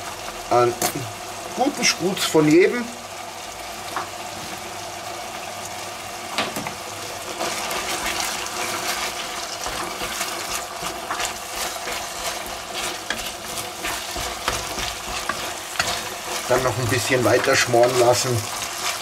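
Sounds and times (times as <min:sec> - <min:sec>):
meat sizzling in a pot: 0:00.0 - 0:19.0
wooden spoon stirring and scraping: 0:07.4 - 0:19.0.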